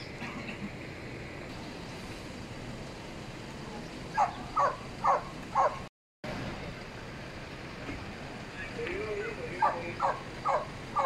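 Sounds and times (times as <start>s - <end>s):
dog barking: 4.2s - 5.8s, 9.6s - 11.0s.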